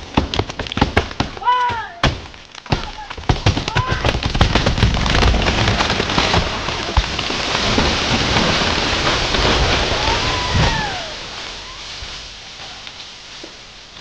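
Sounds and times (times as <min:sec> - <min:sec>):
branches breaking and leaves thrashing: 0:00.0 - 0:14.0
sharp wood cracks: 0:00.0 - 0:14.0
tree crashing down: 0:00.0 - 0:14.0
short high falling call: 0:09.9 - 0:12.0.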